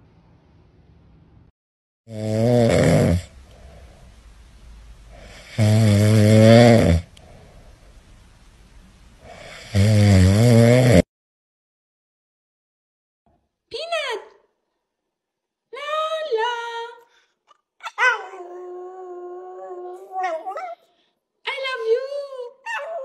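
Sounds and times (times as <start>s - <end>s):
small dog snoring: 2.1s - 3.3s, 5.2s - 7.2s, 9.2s - 11.1s.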